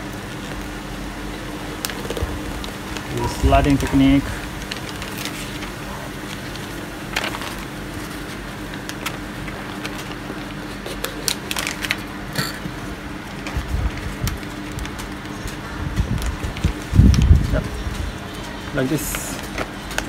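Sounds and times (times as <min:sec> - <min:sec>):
steady low hum: 0:00.0 - 0:20.0
small crackles and clicks: 0:01.8 - 0:03.2, 0:04.6 - 0:12.1, 0:13.3 - 0:20.0
magazine paper crinkling: 0:04.4 - 0:12.1.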